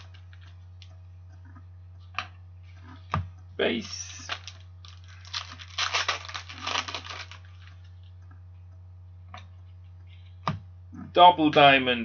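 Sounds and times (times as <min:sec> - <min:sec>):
steady low hum: 0:00.0 - 0:12.0
cards rustling: 0:03.9 - 0:08.0.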